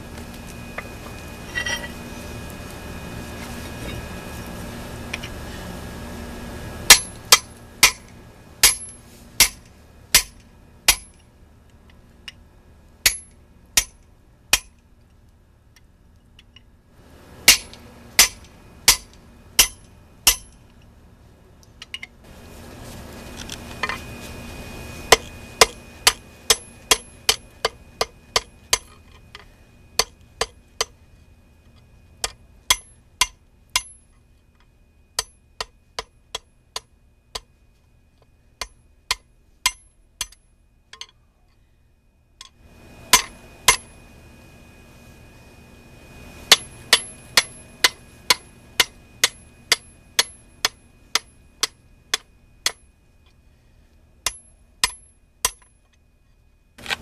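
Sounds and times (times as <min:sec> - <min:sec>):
hammer striking steel on anvil: 0:06.9 - 0:09.6, 0:10.2 - 0:11.2, 0:13.0 - 0:14.7, 0:17.5 - 0:20.6, 0:25.1 - 0:29.0, 0:32.2 - 0:34.1, 0:35.2 - 0:37.5, 0:38.6 - 0:40.4, 0:43.1 - 0:43.9, 0:46.5 - 0:52.9, 0:54.2 - 0:55.8.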